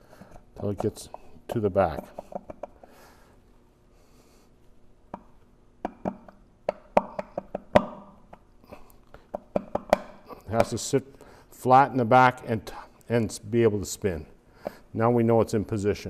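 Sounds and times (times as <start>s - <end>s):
metal clicks and knocks: 1.8s - 2.8s, 5.1s - 8.4s, 9.3s - 10.8s.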